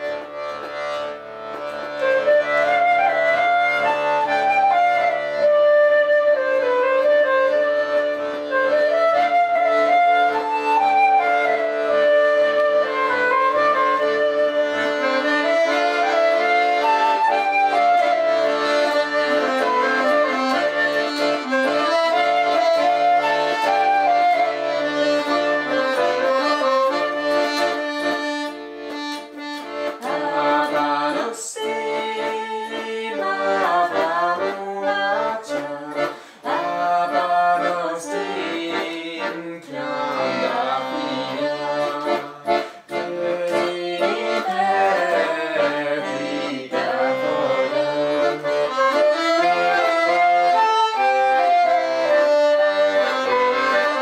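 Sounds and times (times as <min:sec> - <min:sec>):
piano accordion playing a tune: 0:00.0 - 0:54.0
flute: 0:01.9 - 0:28.5, 0:48.7 - 0:54.0
woman singing: 0:30.0 - 0:42.4.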